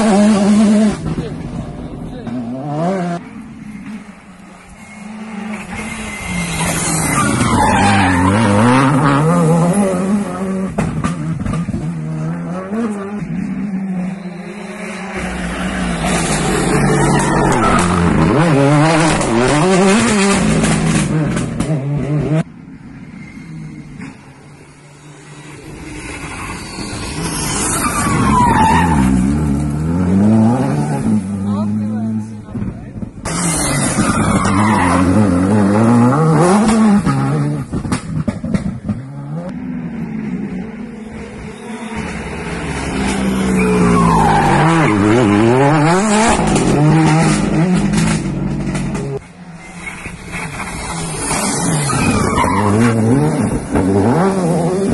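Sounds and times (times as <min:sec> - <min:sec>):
rally car engine revving: 0:00.0 - 0:04.1, 0:04.8 - 0:22.5, 0:26.1 - 0:54.9
tyre squeal: 0:03.6 - 0:09.9, 0:22.9 - 0:29.5, 0:33.3 - 0:35.5, 0:41.0 - 0:46.4, 0:49.4 - 0:53.5.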